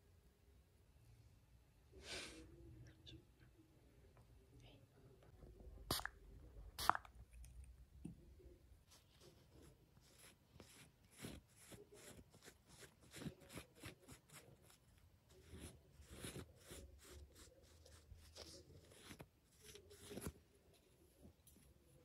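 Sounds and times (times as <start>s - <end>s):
gauze pad rubbing skin: 8.9s - 20.5s.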